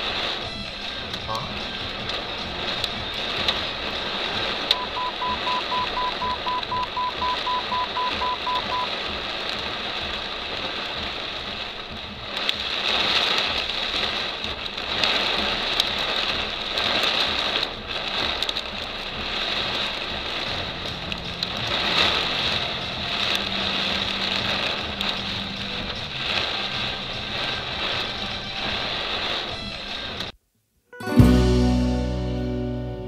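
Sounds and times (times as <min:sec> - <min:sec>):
steady rushing noise: 0:00.0 - 0:30.4
rapid electronic beeps: 0:04.7 - 0:08.9.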